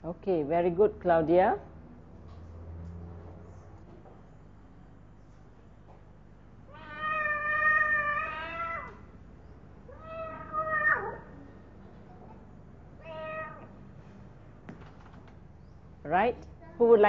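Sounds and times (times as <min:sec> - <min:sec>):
recorded cat meowing: 0:06.7 - 0:09.1, 0:09.9 - 0:11.3, 0:13.0 - 0:13.7.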